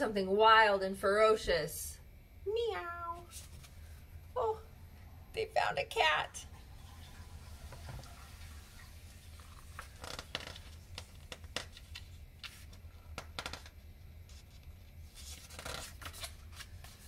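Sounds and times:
low steady hum: 0.0s - 17.0s
paper pages rustling and flicking: 3.3s - 3.9s, 9.4s - 17.0s.

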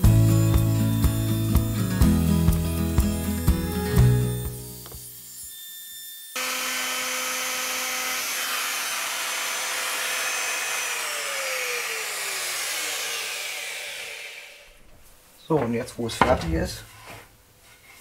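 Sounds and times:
electric router motor whine: 0.0s - 14.7s
router spinning down: 4.3s - 14.7s.

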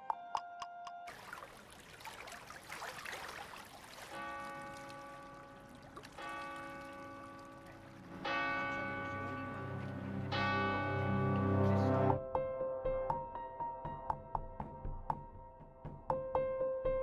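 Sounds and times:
church bell tolling: 4.2s - 12.2s.

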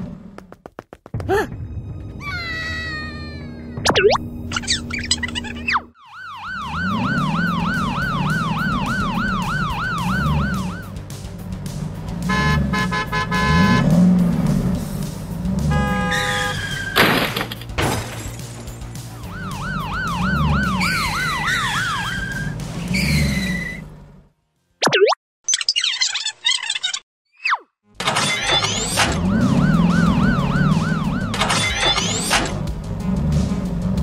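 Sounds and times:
police siren wailing: 6.0s - 11.0s, 19.2s - 22.6s, 29.1s - 32.2s.

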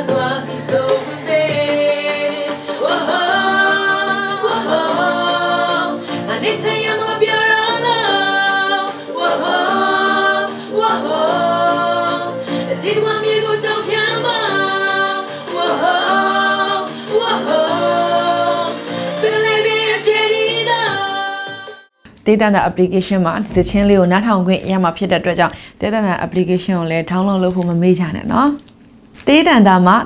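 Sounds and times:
woman singing pop song: 0.0s - 21.9s.

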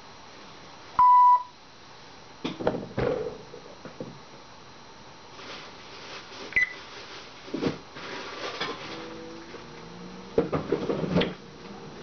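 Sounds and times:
short high beep: 1.0s - 1.5s.

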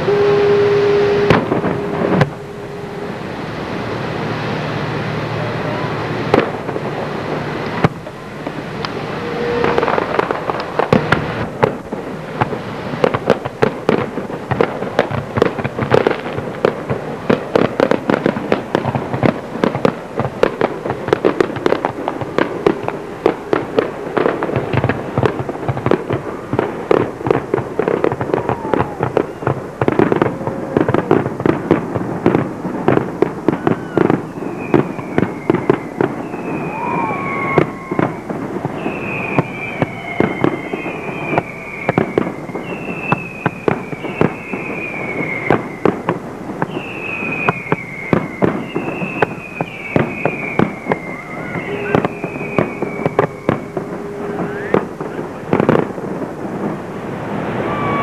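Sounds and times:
falling firework whistles: 0.0s - 4.3s, 8.7s - 11.8s, 20.5s - 55.9s, 56.7s - 58.0s
fireworks bangs and crackles: 0.0s - 58.0s.

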